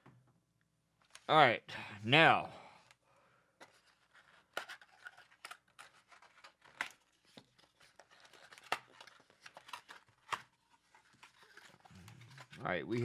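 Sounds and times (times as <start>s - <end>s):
packaging rustling and clicking: 3.6s - 13.0s.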